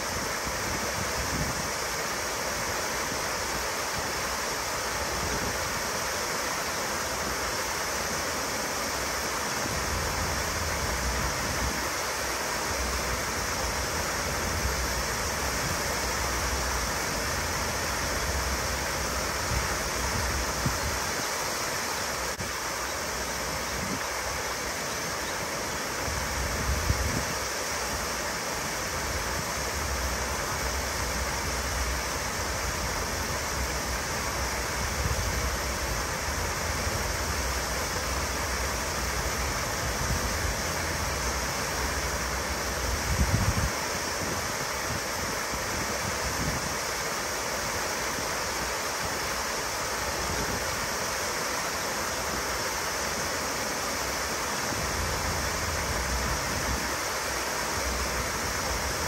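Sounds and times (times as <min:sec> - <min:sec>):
waterfall rushing and splashing: 0:00.0 - 0:59.0.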